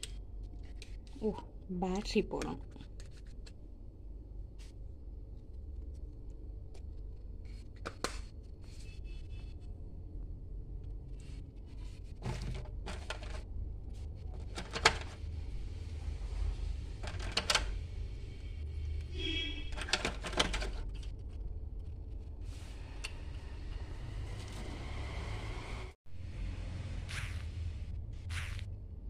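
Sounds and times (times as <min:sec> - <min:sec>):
steady low hum: 0:26.1 - 0:29.0.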